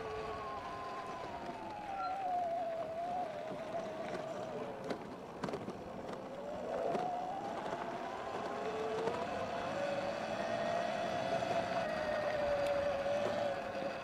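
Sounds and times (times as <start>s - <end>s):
electric motor whining: 6.2s - 14.0s.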